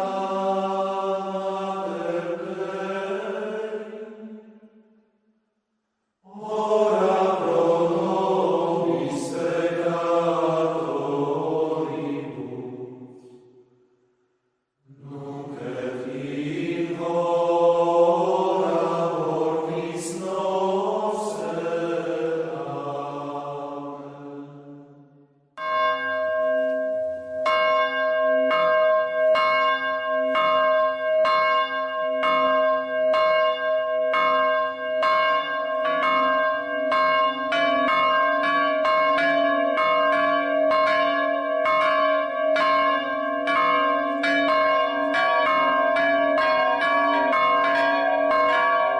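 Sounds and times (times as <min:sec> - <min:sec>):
church bells ringing a peal: 0:00.0 - 0:04.4, 0:06.3 - 0:12.7, 0:15.3 - 0:24.6, 0:25.6 - 0:48.9
chanted singing: 0:00.0 - 0:04.9, 0:06.2 - 0:13.6, 0:14.9 - 0:25.3, 0:35.0 - 0:48.9.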